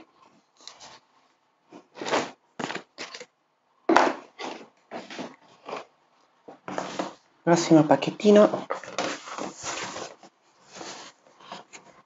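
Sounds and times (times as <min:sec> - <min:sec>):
packaging rustling and crinkling: 0:01.9 - 0:03.3, 0:08.6 - 0:12.0.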